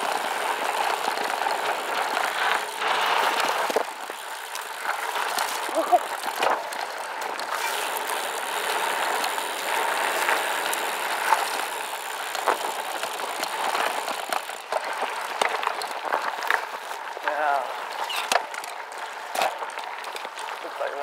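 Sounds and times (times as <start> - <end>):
bike clicks and rattles: 0.0 - 21.0
tyre noise on gravel: 0.0 - 21.0.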